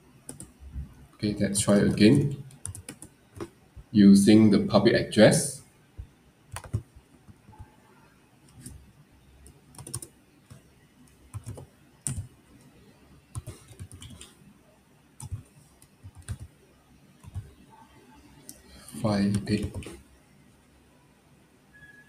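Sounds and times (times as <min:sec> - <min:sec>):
computer keyboard typing: 0:00.3 - 0:00.6, 0:01.7 - 0:03.5, 0:06.5 - 0:07.7, 0:08.5 - 0:08.8, 0:09.4 - 0:12.3, 0:13.3 - 0:14.4, 0:15.2 - 0:16.6, 0:17.2 - 0:17.6, 0:19.3 - 0:20.0.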